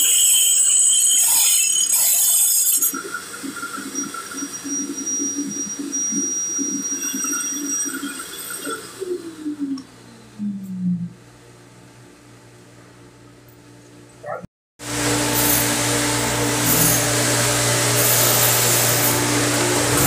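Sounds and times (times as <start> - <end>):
vacuum low hum: 9.3 - 14.4, 19.4 - 20.0.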